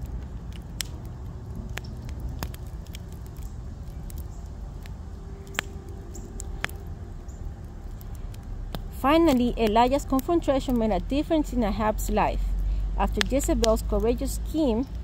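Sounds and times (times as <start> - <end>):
low steady rumble: 0.0 - 15.0
wood fire crackling and popping: 0.0 - 15.0.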